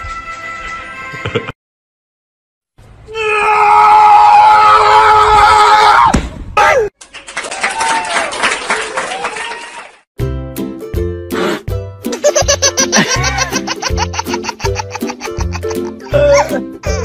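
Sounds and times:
person yelling: 16.1s - 16.7s.

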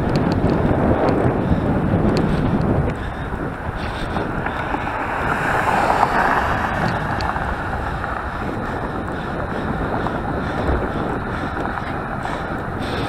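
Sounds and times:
wind on microphone: 0.0s - 13.0s.

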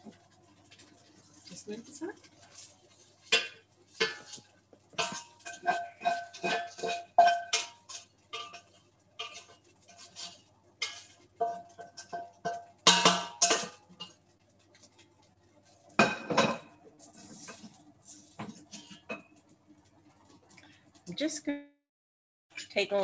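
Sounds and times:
metal spoon knocking frying pan: 3.3s - 10.2s, 10.8s - 14.2s, 16.0s - 16.8s.

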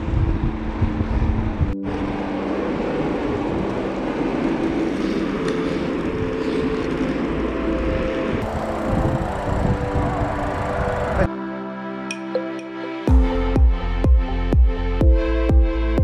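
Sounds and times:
bike tyres on asphalt: 0.0s - 11.3s
wind rushing: 0.0s - 11.3s.

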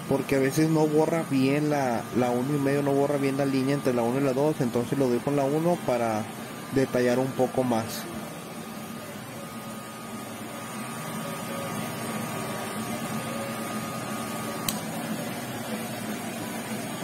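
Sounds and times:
electric hair clippers whining: 13.8s - 15.7s
clipper switch click: 14.6s - 14.9s.

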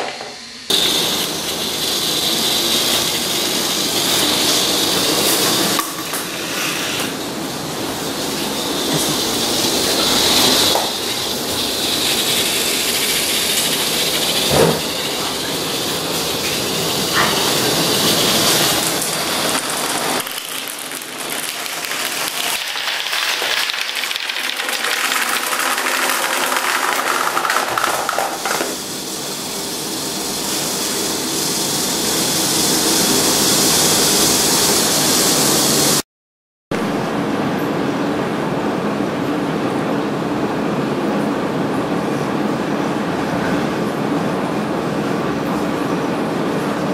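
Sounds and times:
marbles rolling and rattling: 19.9s - 28.7s.

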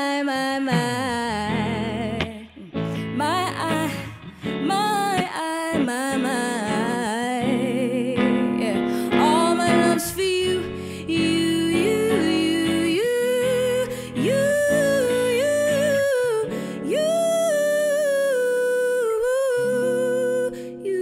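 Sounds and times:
woman singing wordless runs: 0.0s - 2.5s, 4.6s - 17.2s
guitar accompaniment: 0.0s - 21.0s.

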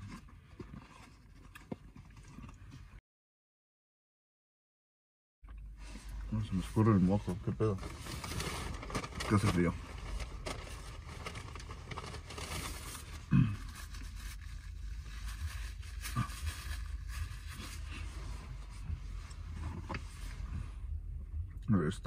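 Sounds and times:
low car cabin hum: 5.5s - 22.0s.

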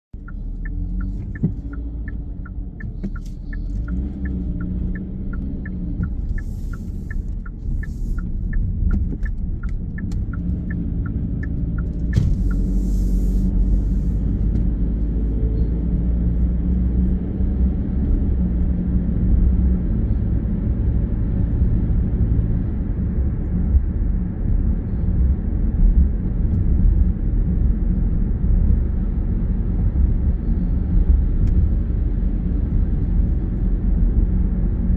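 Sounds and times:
car engine and tyre rumble: 0.0s - 34.9s
turn signal ticking: 0.1s - 18.8s.

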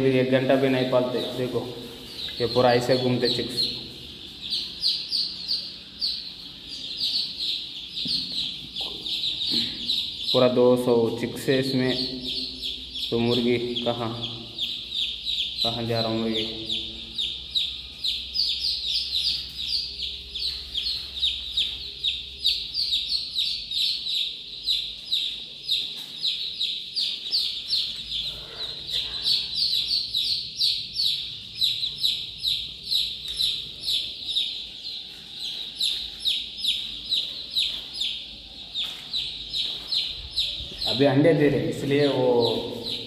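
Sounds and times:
chicks peeping: 0.0s - 43.0s.

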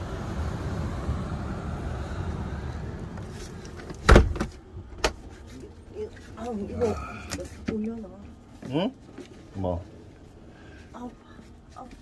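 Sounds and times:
wind: 0.0s - 12.0s
van door thud: 3.8s - 5.2s.

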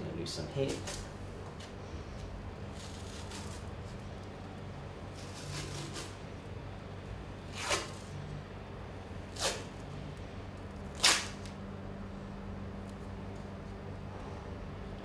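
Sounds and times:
tape peeling off roll: 2.7s - 4.0s, 5.1s - 6.2s, 7.5s - 8.2s, 9.3s - 9.9s, 10.9s - 11.6s.

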